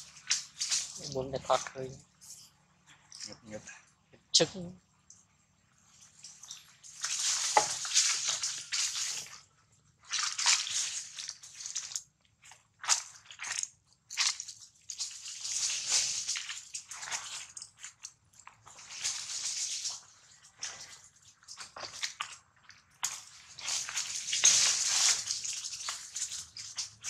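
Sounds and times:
dry leaves crunching: 0:00.0 - 0:01.9, 0:05.8 - 0:09.4, 0:10.0 - 0:27.0.

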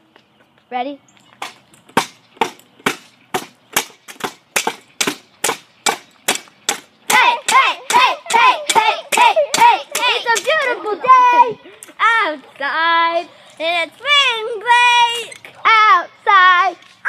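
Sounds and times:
child singing: 0:07.1 - 0:16.8.

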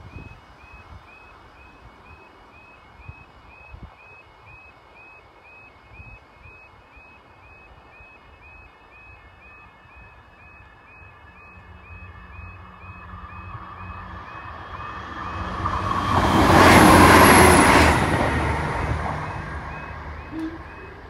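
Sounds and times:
level crossing alarm beeping: 0:00.6 - 0:21.0
approaching train rumble and hum: 0:06.9 - 0:21.0.

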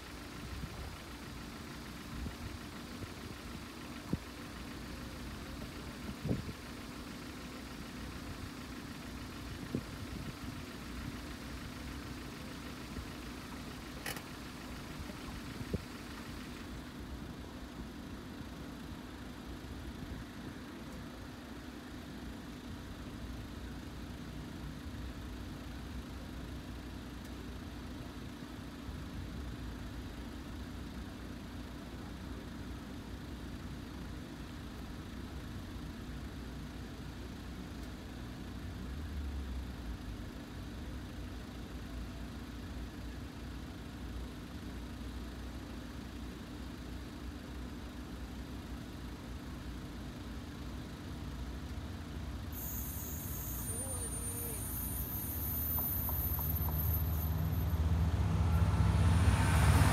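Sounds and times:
car and truck engines idling: 0:00.0 - 0:59.9.

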